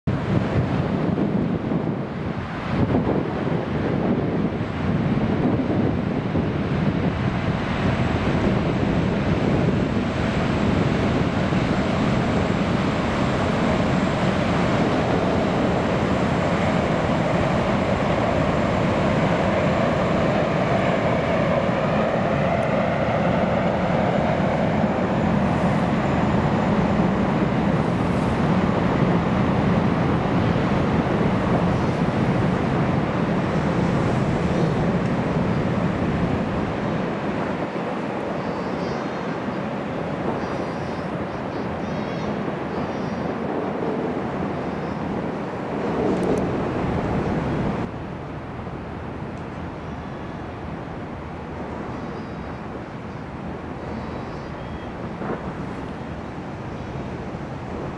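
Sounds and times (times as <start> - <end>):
waterjet spray rushing: 1.8 - 49.8, 50.4 - 57.9.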